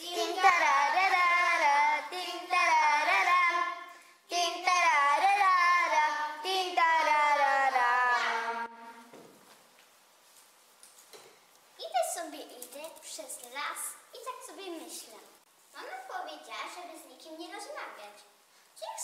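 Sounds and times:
girl singing: 0.0 - 9.1.

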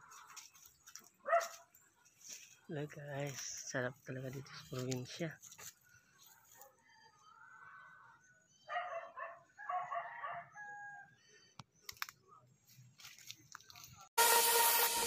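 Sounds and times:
rooster crowing: 9.6 - 11.1.

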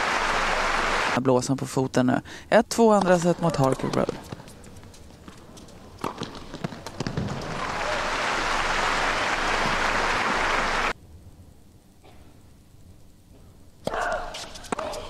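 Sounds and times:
stadium crowd applauding: 0.0 - 1.2, 6.9 - 11.0
racket hitting tennis ball: 3.0 - 8.7, 13.8 - 15.0.

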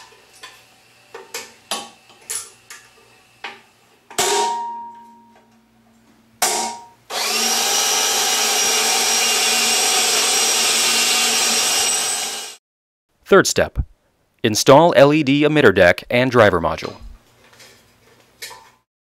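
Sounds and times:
cordless drill on metal: 7.1 - 12.6.

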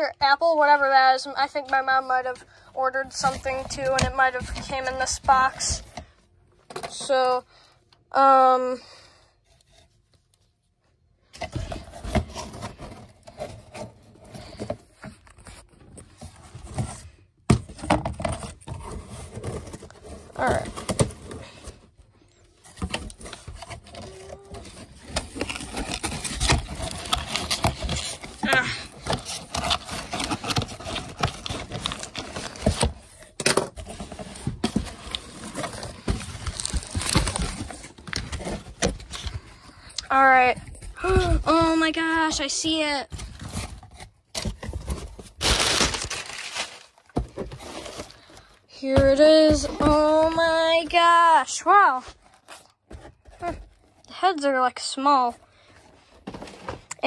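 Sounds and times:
packing paper rustling: 18.0 - 51.3.

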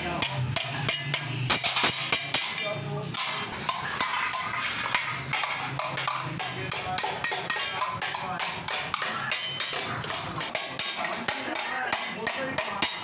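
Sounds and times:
hammer striking steel sheet: 0.0 - 13.0.

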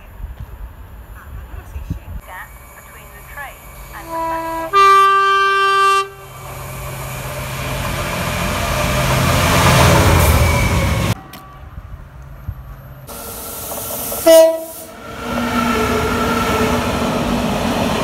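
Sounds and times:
train rumbling on rails: 0.0 - 18.0
train horn: 4.0 - 6.3, 14.2 - 16.7.

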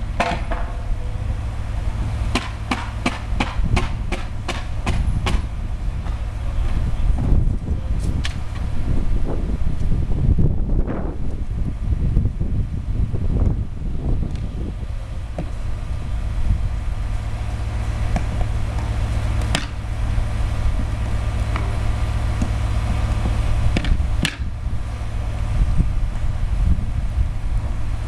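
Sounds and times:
steady low rumble: 0.0 - 28.0
sharp knocks of building work: 0.2 - 0.8, 2.3 - 6.2, 18.1 - 19.8, 22.4 - 24.5.

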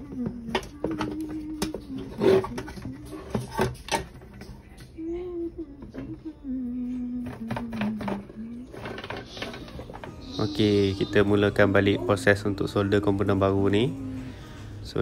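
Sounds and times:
man humming: 9.3 - 13.1.

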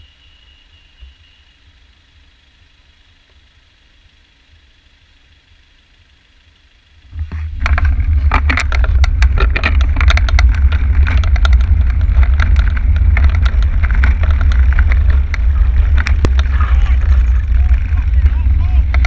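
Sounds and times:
faint traffic: 0.0 - 19.0
rapid rattling clicks: 6.9 - 19.0
heavy wind rumble: 7.0 - 19.0.

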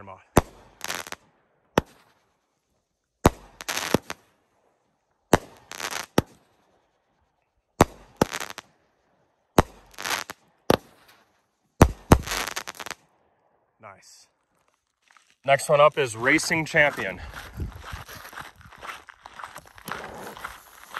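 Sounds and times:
firework shells bursting: 3.2 - 4.2, 7.8 - 8.7, 9.6 - 13.0
firework launch reports: 15.4 - 17.3.

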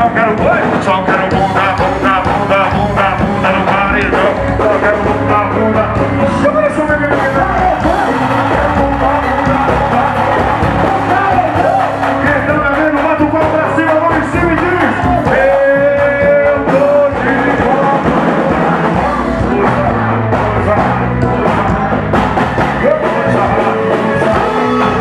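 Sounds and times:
live band playing: 0.0 - 25.0
singing into microphones: 0.0 - 25.0.

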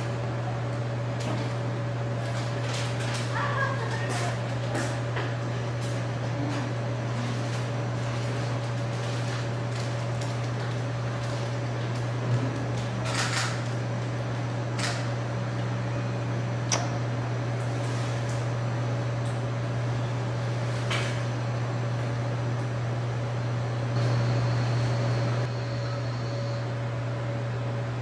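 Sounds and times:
low machine hum: 0.0 - 28.0.

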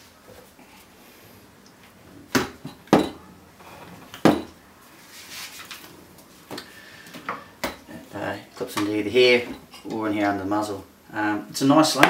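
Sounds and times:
soft scuffling: 4.8 - 6.6.

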